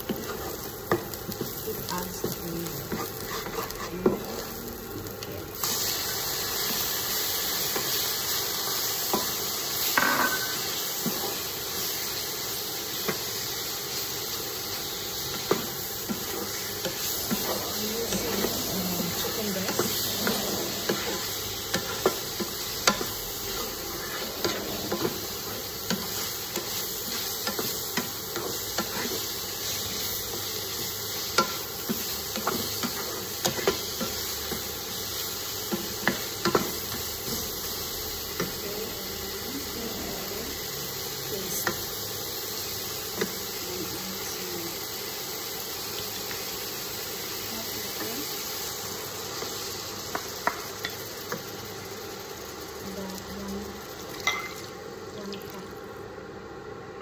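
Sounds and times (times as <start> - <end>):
chicken sizzling in a wok: 0.0 - 57.0.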